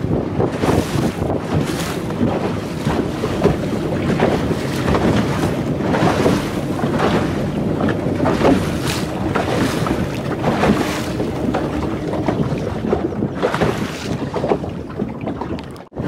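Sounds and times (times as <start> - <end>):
motorboat rushing through sea: 0.0 - 16.0
water splashes: 0.0 - 16.0
wind buffeting microphone: 0.0 - 16.0.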